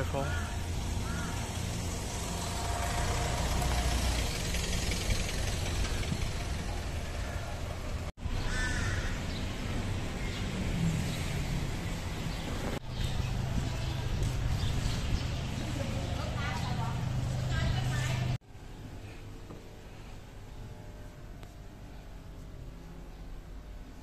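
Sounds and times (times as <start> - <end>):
harsh bird calls: 0.0 - 1.8
traffic hum: 0.0 - 24.0.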